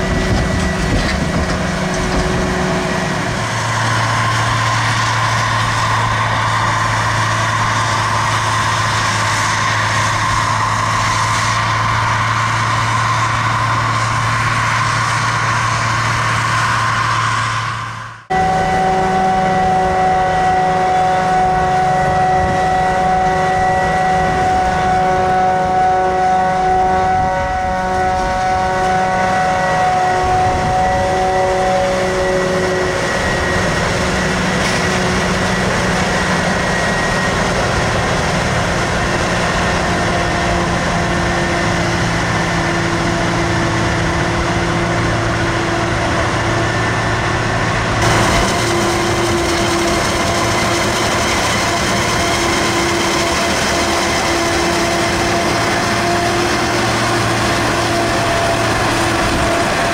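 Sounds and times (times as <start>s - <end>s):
heavy harvest machinery running: 0.0s - 59.9s
steady machine whine: 0.0s - 59.9s.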